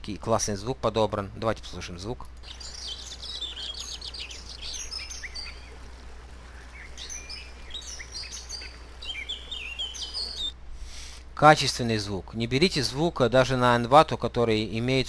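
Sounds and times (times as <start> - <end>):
birds singing and chirping: 2.3 - 10.6
small waterfalls rushing: 2.5 - 10.4.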